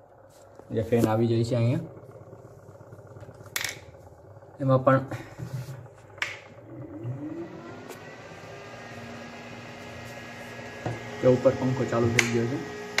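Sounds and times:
electric fan whirring: 0.0s - 13.0s
fan switch click: 12.1s - 12.4s.

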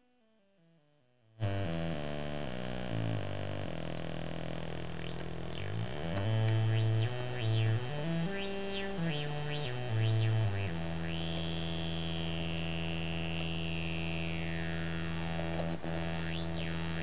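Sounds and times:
synthesizer low notes: 1.4s - 17.0s
high synthesizer tone sliding down: 5.0s - 15.1s, 15.8s - 17.0s.

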